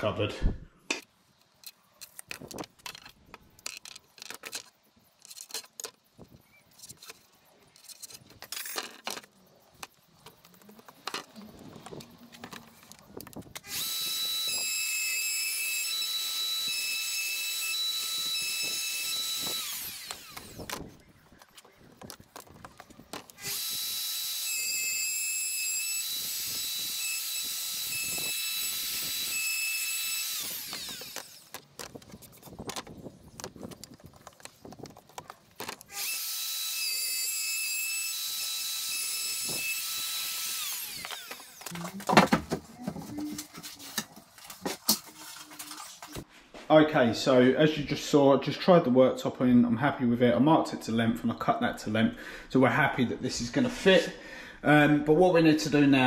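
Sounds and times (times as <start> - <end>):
router high whine: 13.6 - 21.8, 23.4 - 31.6, 35.9 - 41.7.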